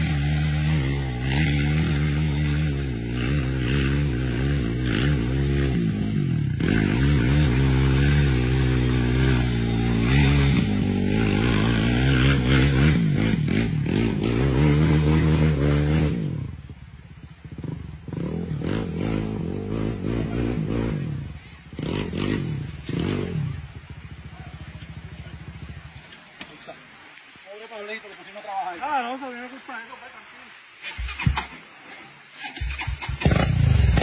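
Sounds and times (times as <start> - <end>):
quad engine revving: 0.0 - 16.7, 17.4 - 25.8, 32.4 - 34.0
wheels spinning in mud: 0.0 - 26.8, 30.8 - 34.0.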